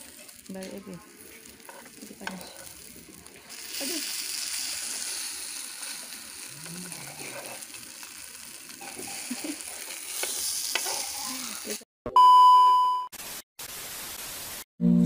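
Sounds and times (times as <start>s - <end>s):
oil sizzling in a frying pan: 0.0s - 11.8s, 13.2s - 14.6s
metal spoon scraping a pan: 1.4s - 2.9s, 6.9s - 7.7s, 8.8s - 11.6s.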